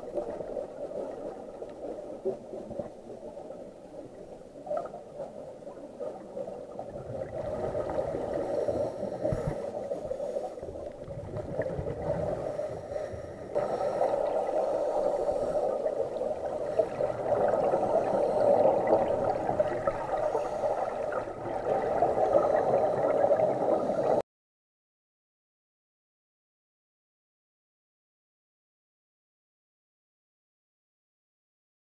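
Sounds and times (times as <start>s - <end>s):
diver bubbles gurgling: 0.0s - 24.2s
underwater wash of water: 0.0s - 24.2s.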